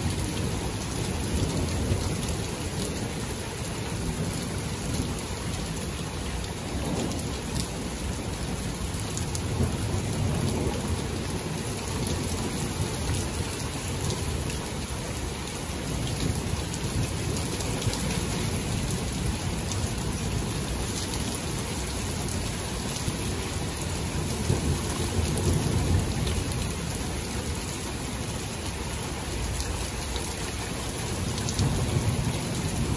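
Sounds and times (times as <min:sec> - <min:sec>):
thunder rumbling: 0:00.0 - 0:14.5, 0:16.0 - 0:27.7
rain falling: 0:00.0 - 0:32.9.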